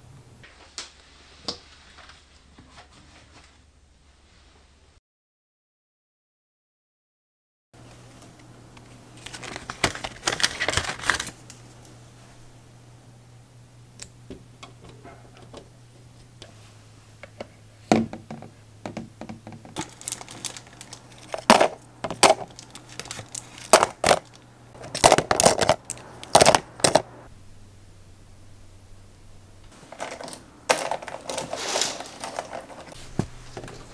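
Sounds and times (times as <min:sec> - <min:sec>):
small hard objects clicking: 0:19.8 - 0:27.1, 0:29.9 - 0:32.9.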